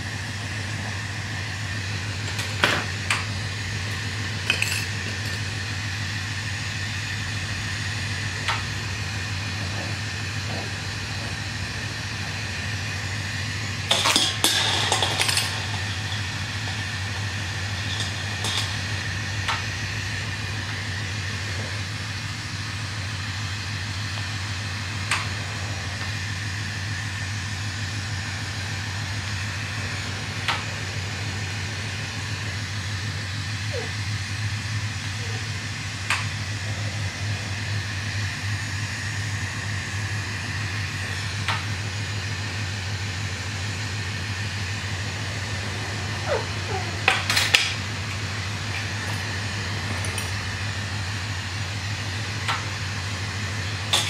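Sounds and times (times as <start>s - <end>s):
clicks and clinks: 4.4s - 5.5s, 17.8s - 18.8s, 48.7s - 50.4s.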